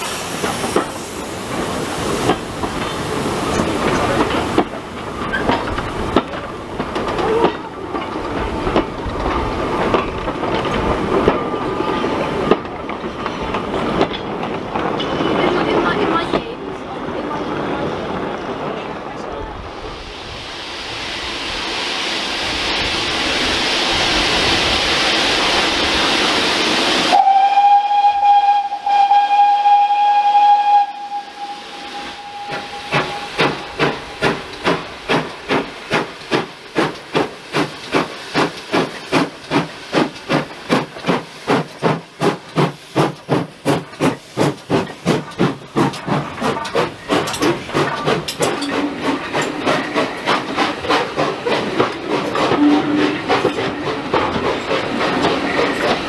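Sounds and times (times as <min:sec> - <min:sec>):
steam hissing: 0:00.0 - 0:16.4, 0:19.6 - 0:56.0
steam locomotive chuffing: 0:00.0 - 0:18.4, 0:19.7 - 0:56.0
steam whistle blast: 0:27.1 - 0:34.4, 0:52.5 - 0:53.3.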